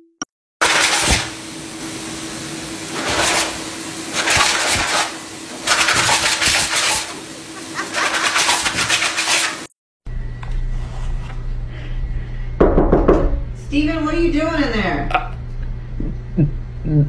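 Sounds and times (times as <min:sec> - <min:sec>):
grooming dryer blowing air: 0:00.6 - 0:09.7.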